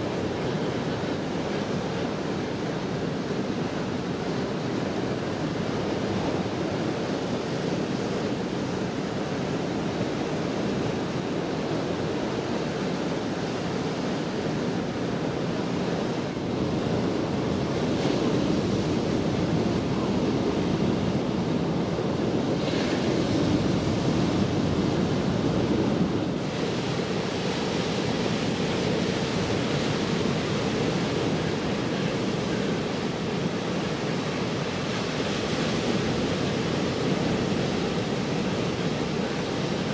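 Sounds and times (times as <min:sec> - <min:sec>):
surf breaking on rocky shore: 0:22.6 - 0:39.9.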